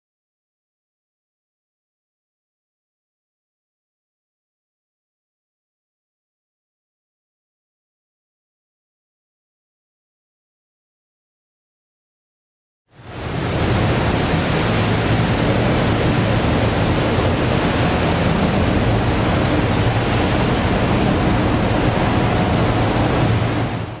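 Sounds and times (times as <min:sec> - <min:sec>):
boat engines droning: 0:13.0 - 0:24.0
wake water rushing: 0:13.0 - 0:24.0.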